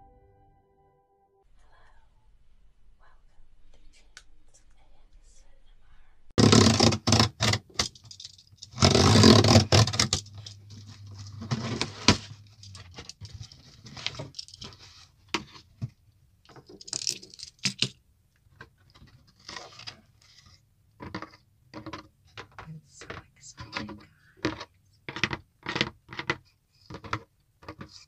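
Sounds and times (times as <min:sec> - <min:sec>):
cardboard packaging handled: 0:06.4 - 0:15.8.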